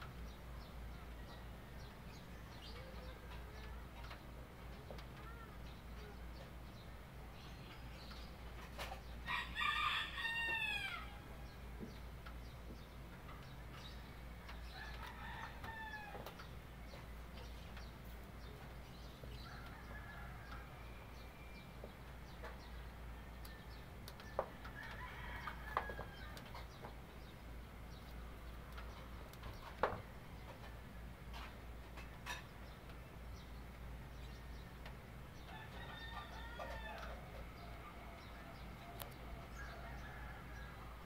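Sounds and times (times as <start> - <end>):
rooster crowing: 9.3 - 11.3, 14.7 - 16.3, 35.5 - 41.0.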